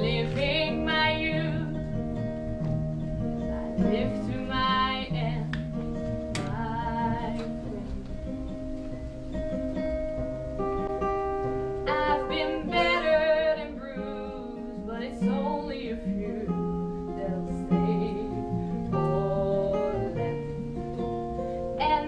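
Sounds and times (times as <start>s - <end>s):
acoustic guitar playing: 0.0s - 22.0s
person singing wordless phrases: 11.9s - 20.6s.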